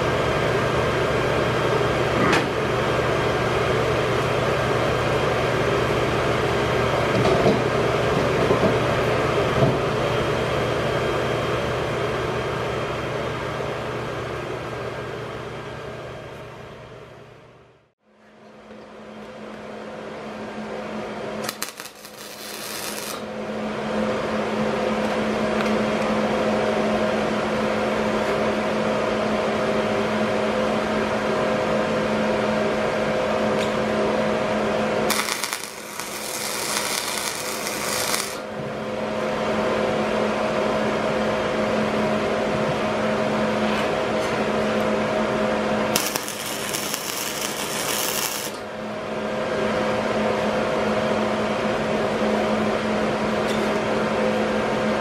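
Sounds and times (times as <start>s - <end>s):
steady background hum: 0.0s - 55.0s
welder arc crackling and hissing: 21.4s - 23.3s, 35.1s - 38.5s, 46.0s - 48.7s.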